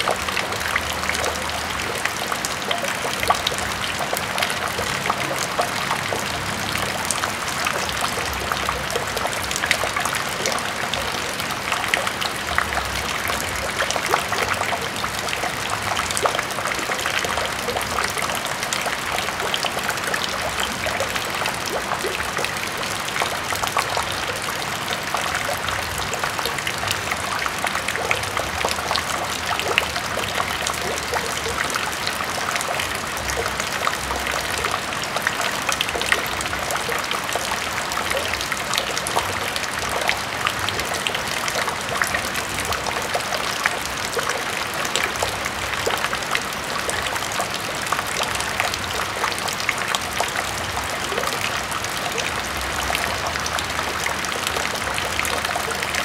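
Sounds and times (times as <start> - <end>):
rain splashing into water: 0.0 - 56.0.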